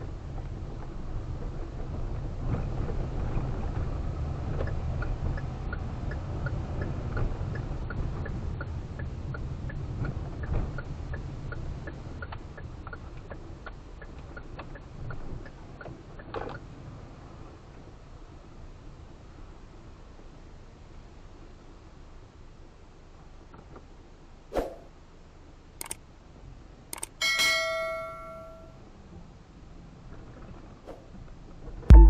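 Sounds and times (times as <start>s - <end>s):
car cabin road rumble: 0.0s - 20.4s
turn signal ticking: 4.0s - 16.8s.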